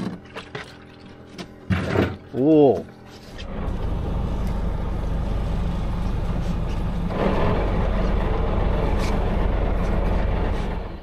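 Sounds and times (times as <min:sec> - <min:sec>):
boat engine humming: 0:02.3 - 0:11.0.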